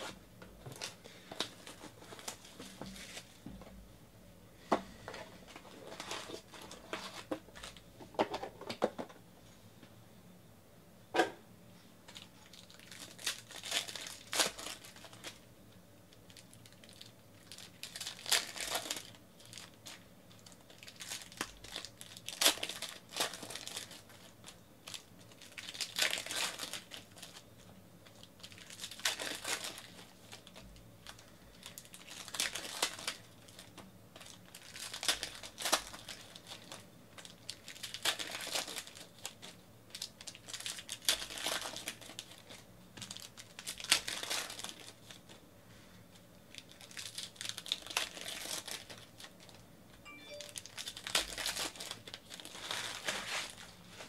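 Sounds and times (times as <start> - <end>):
foil wrappers tearing and crinkling: 0.0 - 3.4, 12.1 - 15.5, 16.2 - 45.4, 46.5 - 49.6, 50.5 - 54.0.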